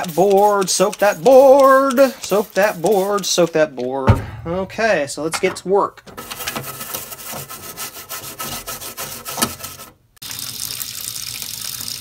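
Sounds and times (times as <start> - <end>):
toothbrush scrubbing circuit board: 0.0 - 3.5.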